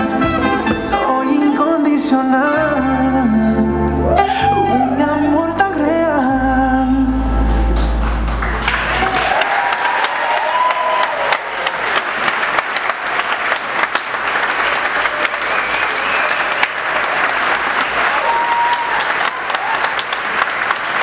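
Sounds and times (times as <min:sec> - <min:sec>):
audience applauding: 0:07.8 - 0:21.0
crowd cheering: 0:08.3 - 0:21.0.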